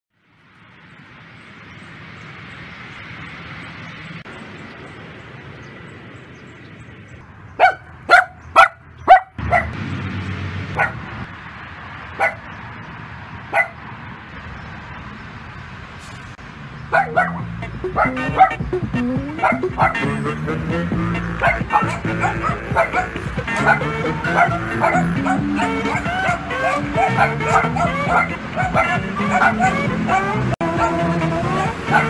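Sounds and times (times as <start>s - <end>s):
small dog barking: 7.6s - 9.8s, 10.8s - 11.0s, 12.2s - 12.5s, 13.5s - 13.8s, 16.9s - 18.7s, 19.3s - 20.1s, 21.4s - 31.1s.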